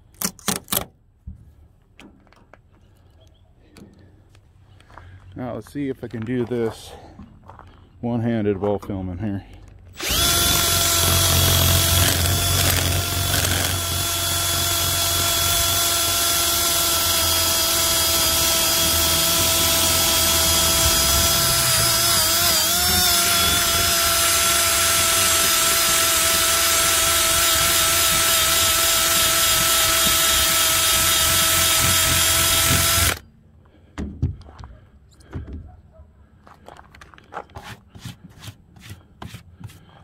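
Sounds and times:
cordless drill motor whine: 9.9s - 33.2s.

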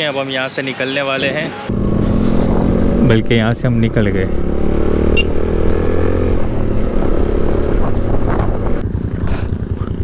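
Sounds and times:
motorcycle engine running: 1.7s - 10.0s
wind rush: 5.5s - 9.0s.

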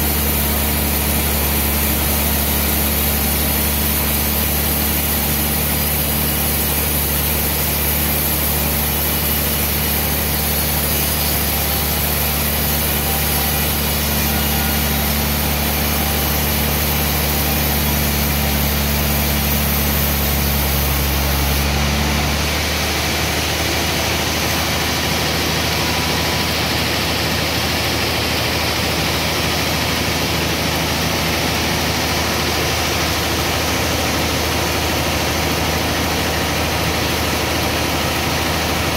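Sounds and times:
band saw sawing a log: 0.0s - 38.9s.

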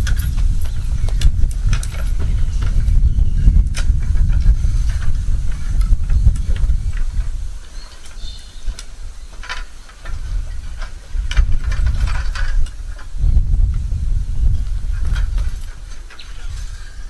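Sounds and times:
low rumble: 0.0s - 7.6s, 10.3s - 15.8s
metal awning frame rattling: 0.0s - 17.0s.

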